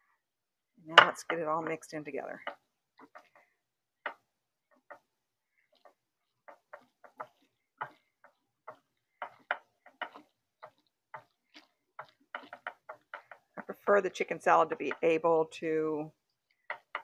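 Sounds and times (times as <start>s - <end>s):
spatula scraping glass dish: 6.5s - 13.6s.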